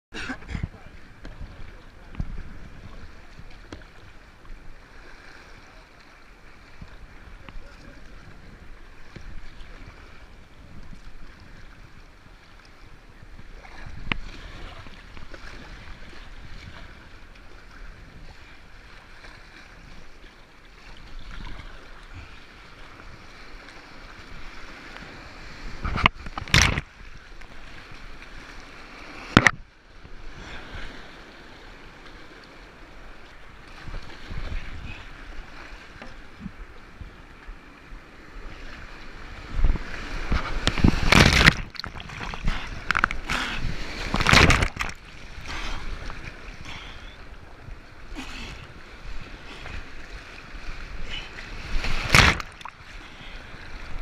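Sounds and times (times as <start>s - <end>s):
paddle strokes splashing: 0.8s - 54.0s
whitewater rushing: 50.9s - 54.0s.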